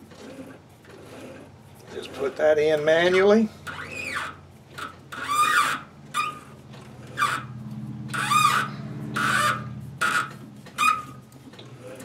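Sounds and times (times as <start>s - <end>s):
tap squealing cutting metal: 3.1s - 7.5s, 8.1s - 11.3s.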